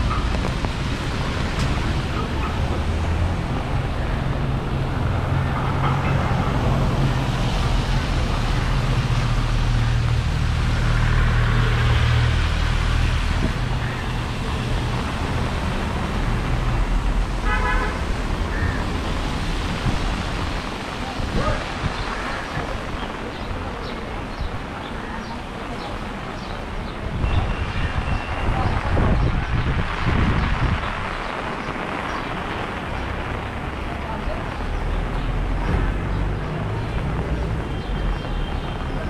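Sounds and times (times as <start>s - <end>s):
traffic rumble: 0.0s - 39.0s
car horn toot: 17.4s - 18.0s.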